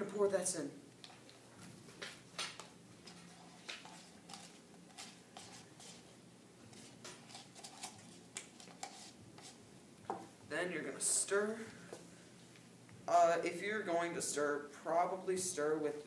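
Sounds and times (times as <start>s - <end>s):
paper cups clicking and tapping: 2.0s - 6.1s, 6.7s - 10.2s.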